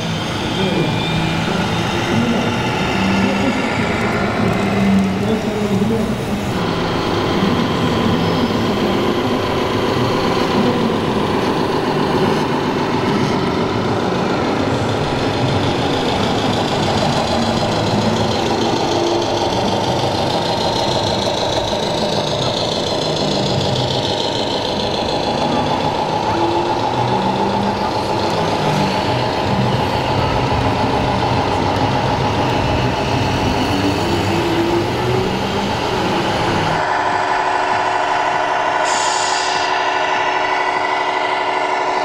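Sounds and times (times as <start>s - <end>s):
simulated diesel truck engines: 0.0s - 42.0s.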